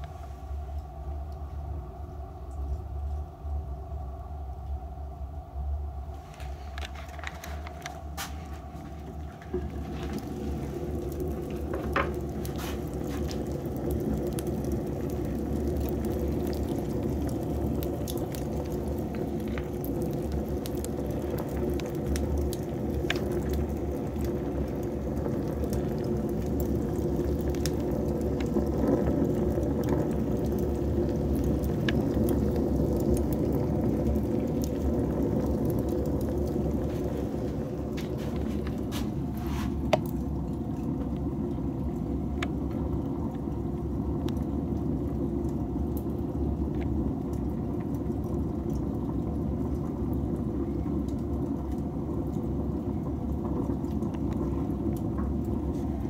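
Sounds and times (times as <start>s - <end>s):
fire rushing hiss: 6.1s - 40.1s
fire crackles and pops: 6.1s - 56.0s.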